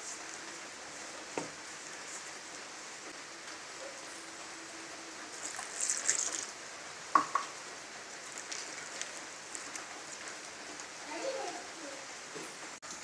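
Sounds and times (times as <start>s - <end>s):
hand stirring wet batter: 8.2s - 10.2s.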